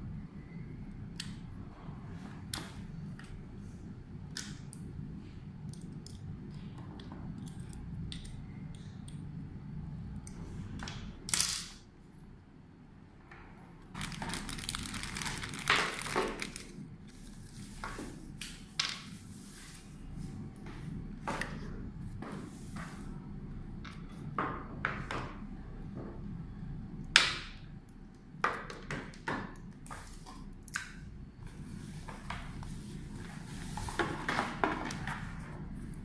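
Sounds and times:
low steady hum: 0:00.0 - 0:36.0
crinkling rustle: 0:14.0 - 0:17.6.

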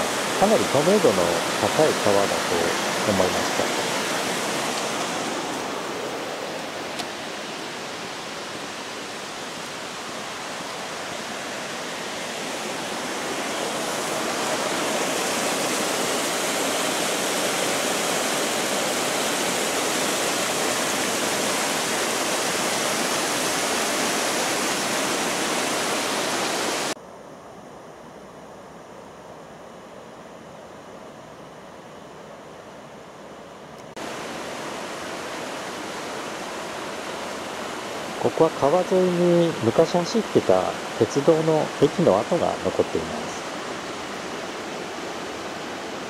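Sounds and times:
river rushing over rocks: 0:00.0 - 0:27.0, 0:34.0 - 0:46.0
faint steady hiss: 0:00.0 - 0:46.0.

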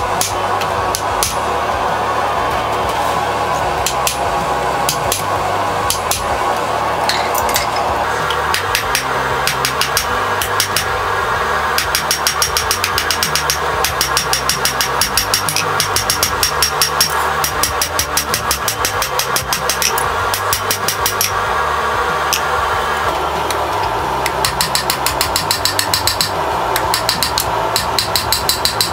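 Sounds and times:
background music: 0:00.0 - 0:28.9
hammer ringing on hot metal: 0:11.8 - 0:21.4, 0:24.3 - 0:28.9.

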